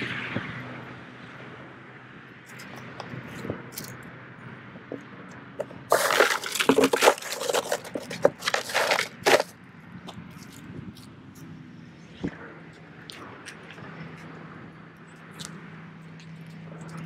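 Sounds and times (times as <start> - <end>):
ice crunching: 5.6 - 9.5
meltwater sloshing: 5.6 - 9.5
rustling: 5.6 - 9.5.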